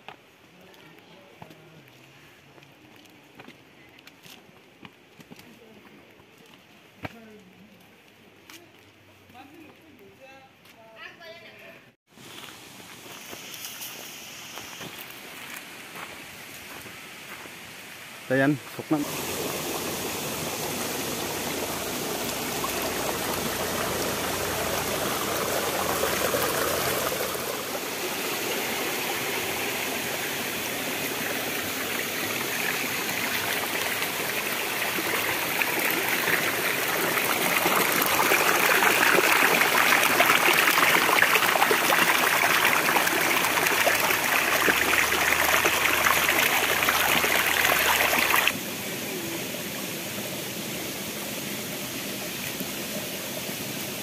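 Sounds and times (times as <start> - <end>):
stream splashing over stones: 18.4 - 48.6.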